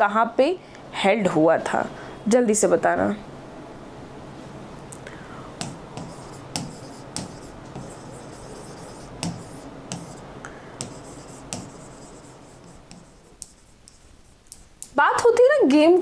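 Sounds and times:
stylus tapping on screen: 5.6 - 10.2, 10.8 - 15.0
stylus scratching: 5.6 - 14.9.

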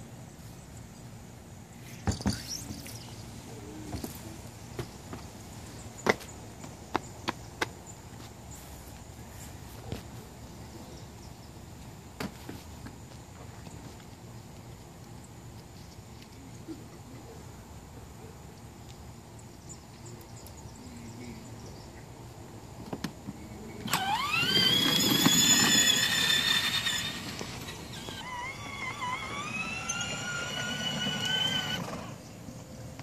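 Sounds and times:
rumble of gears and plastic wheels: 23.2 - 33.0
electric motor whine: 23.9 - 32.3.

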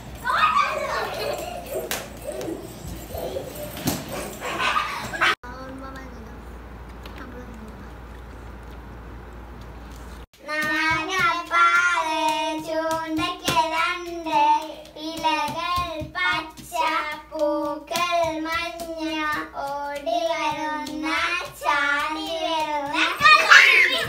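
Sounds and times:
children singing: 19.1 - 24.0.

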